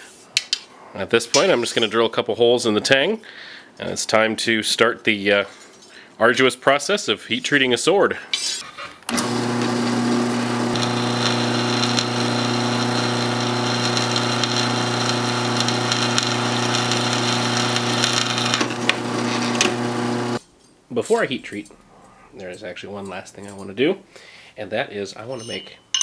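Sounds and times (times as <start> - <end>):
drill bit high tone: 9.1 - 20.4
drill press motor hum: 9.1 - 20.4.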